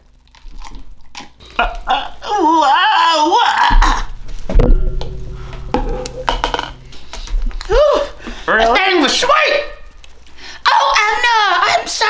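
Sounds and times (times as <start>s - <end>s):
low steady hum: 3.8s - 10.7s.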